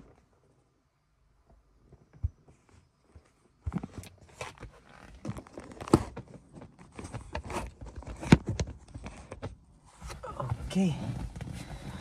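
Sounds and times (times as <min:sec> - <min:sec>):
rustling on leather seat: 0:08.9 - 0:12.0.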